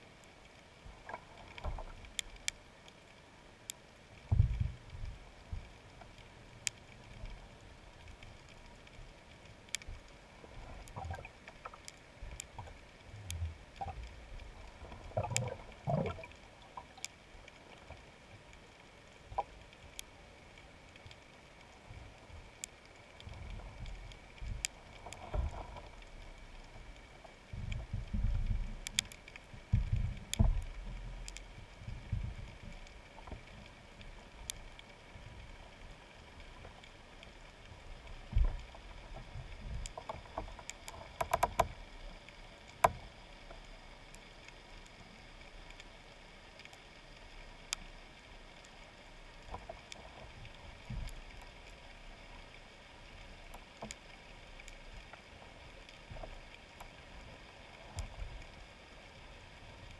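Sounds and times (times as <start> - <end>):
underwater thuds and rumbling: 4.3 - 5.7, 27.5 - 29.0, 29.6 - 32.8
sharp clicks: 39.8 - 41.8.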